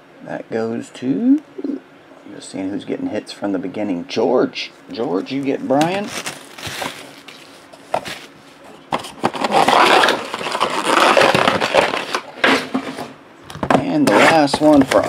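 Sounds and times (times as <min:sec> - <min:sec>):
plastic wrapping crinkling: 0:05.2 - 0:12.3.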